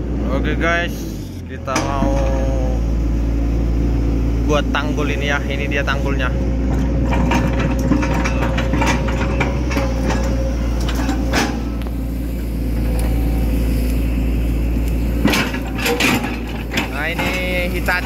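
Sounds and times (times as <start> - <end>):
diesel engine running: 0.0 - 18.0
excavator bucket clanks and knocks: 1.7 - 2.4, 6.2 - 12.0, 15.1 - 18.0.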